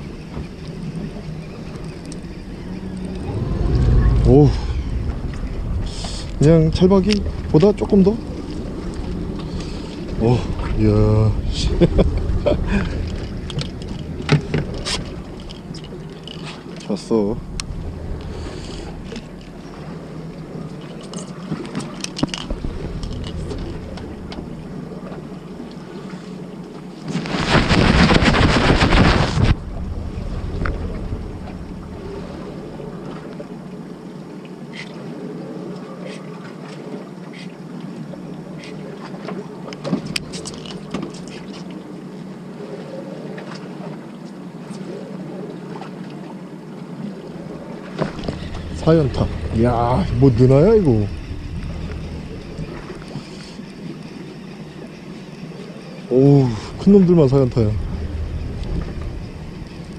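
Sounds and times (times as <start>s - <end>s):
boat engine idling: 0.0s - 26.8s, 29.6s - 35.4s, 47.2s - 59.9s
water noise: 0.0s - 59.9s
wind: 0.0s - 59.9s
loud rushing noise: 3.2s - 8.4s.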